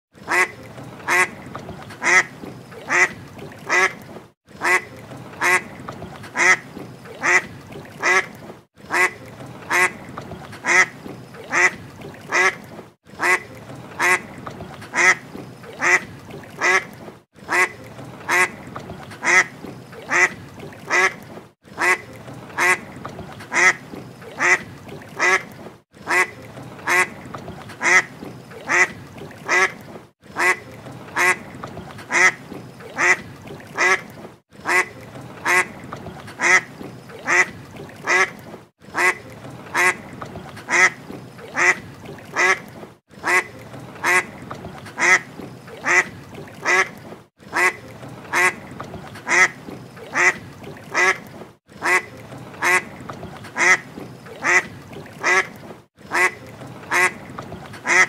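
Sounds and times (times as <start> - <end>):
duck quacking raspily: 0.3 - 0.5, 1.1 - 1.3, 2.0 - 3.1, 4.6 - 4.8, 5.4 - 5.7, 6.3 - 6.6, 7.2 - 7.4, 8.9 - 10.0, 11.5 - 12.6, 13.2 - 13.4, 14.9 - 15.2, 15.8 - 16.0, 17.5 - 17.7, 18.3 - 18.6, 20.1 - 20.3, 20.9 - 21.2, 21.8 - 22.0, 24.4 - 24.6, 26.1 - 26.3, 26.9 - 27.1, 28.7 - 28.9, 30.4 - 30.6, 32.1 - 32.4, 33.8 - 35.7, 43.2 - 44.3, 44.9 - 45.2, 56.1 - 57.2.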